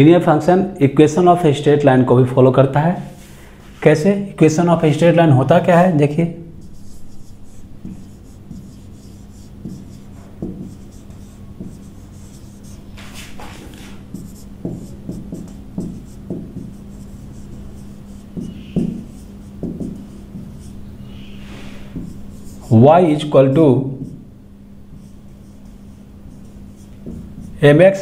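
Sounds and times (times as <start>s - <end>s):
steady low hum: 0.0s - 28.0s
marker squeaking on whiteboard: 6.6s - 22.8s, 25.0s - 27.7s.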